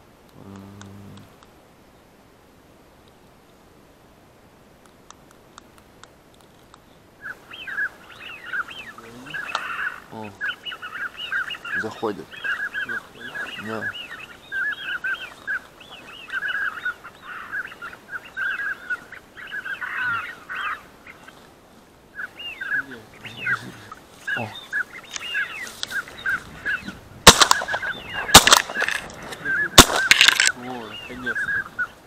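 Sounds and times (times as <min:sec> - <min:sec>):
ducks quacking: 0:07.2 - 0:21.4, 0:22.2 - 0:32.0
shotgun shots: 0:27.2 - 0:29.1, 0:29.8 - 0:30.5.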